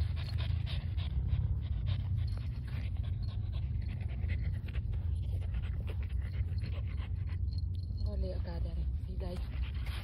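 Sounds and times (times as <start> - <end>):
dog panting: 0.0 - 10.0.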